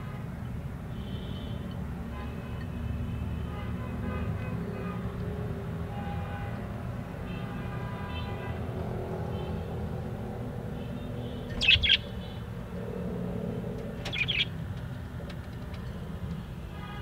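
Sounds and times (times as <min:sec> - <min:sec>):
budgerigar chirping: 0:11.6 - 0:12.2, 0:14.1 - 0:14.5.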